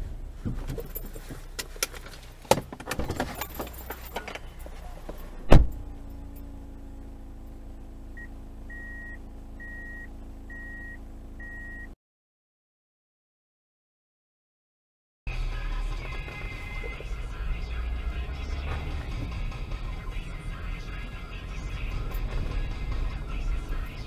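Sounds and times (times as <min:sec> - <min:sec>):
rattles and knocks in car cabin: 0:00.1 - 0:05.9
diesel engine idling: 0:03.3 - 0:11.9, 0:15.3 - 0:24.0
loud thump: 0:05.4 - 0:05.8
high beep: 0:08.2 - 0:12.0.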